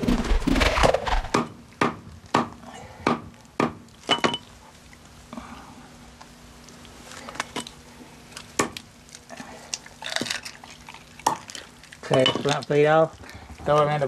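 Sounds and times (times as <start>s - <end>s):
hatchet chopping onto wood: 1.3s - 3.8s.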